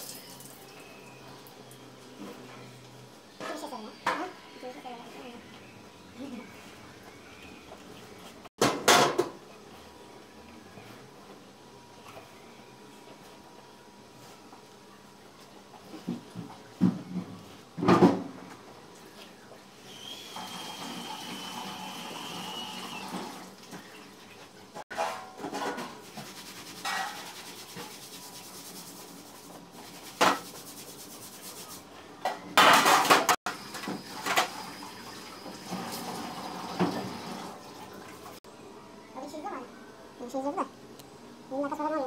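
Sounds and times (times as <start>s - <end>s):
pans and utensils clanking: 8.6s - 9.4s, 24.9s - 27.8s, 32.2s - 34.6s.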